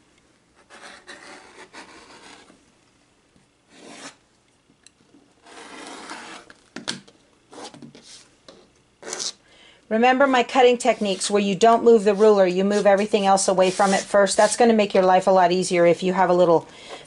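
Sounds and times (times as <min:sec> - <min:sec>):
rotary cutter slicing fabric: 0:05.4 - 0:06.6.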